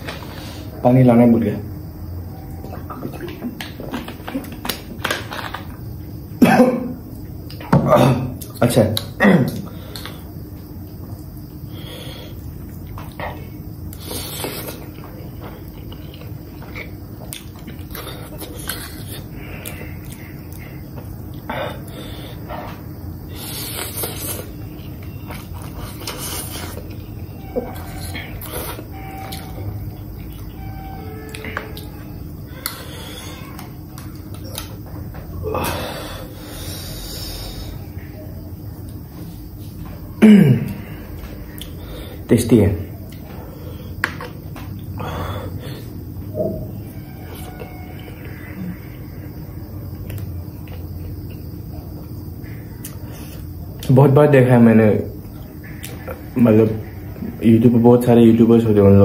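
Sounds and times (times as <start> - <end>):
person coughing: 6.4 - 6.9, 7.7 - 8.3, 40.2 - 40.8
throaty exhale: 35.4 - 37.9, 45.0 - 46.0.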